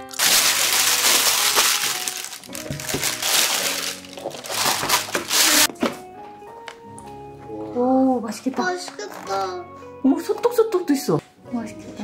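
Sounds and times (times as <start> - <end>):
plastic bag rustling: 0.0 - 5.7
light background music: 0.0 - 12.0.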